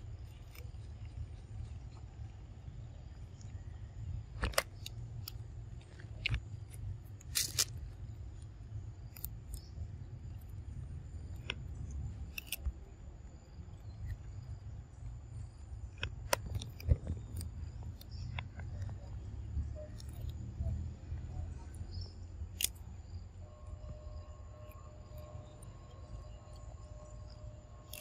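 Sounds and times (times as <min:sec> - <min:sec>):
monkey crunching lettuce: 0:07.2 - 0:07.7.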